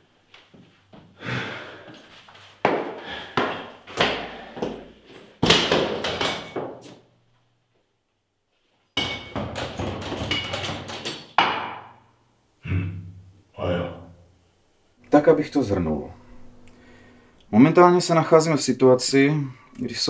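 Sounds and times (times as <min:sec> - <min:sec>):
fast clatter of knocks: 0:09.0 - 0:11.8.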